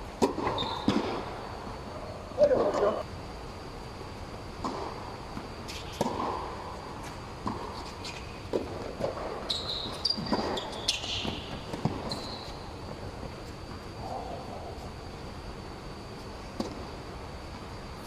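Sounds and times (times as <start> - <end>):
sneaker squeaks: 0.4 - 1.2, 7.8 - 8.5, 9.1 - 13.6
tennis ball bouncing: 4.6 - 6.5
racquet hitting tennis ball: 5.7 - 6.6.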